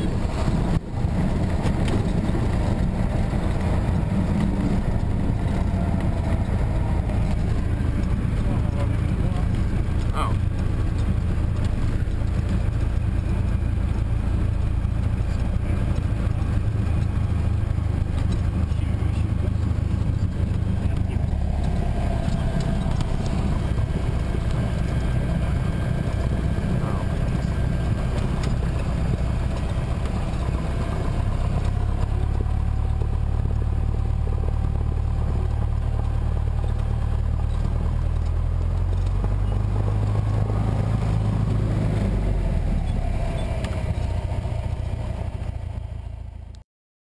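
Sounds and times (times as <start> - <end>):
light aircraft engine and propeller: 0.0 - 46.6.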